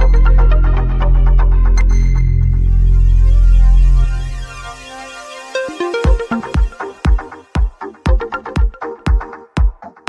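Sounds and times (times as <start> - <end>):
low synth drone: 0.0 - 7.5
kick drum beat: 6.0 - 10.0.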